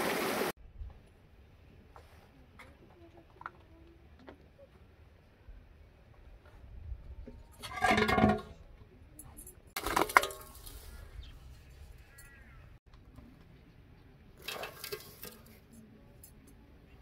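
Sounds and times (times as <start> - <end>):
pot lid scraping metal basin: 7.6 - 8.6.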